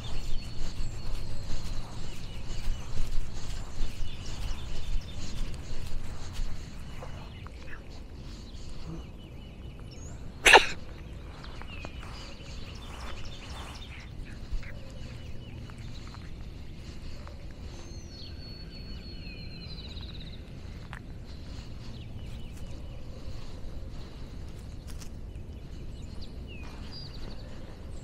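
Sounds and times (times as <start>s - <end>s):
birds singing: 0.0s - 28.0s
person sneezing: 10.4s - 10.9s.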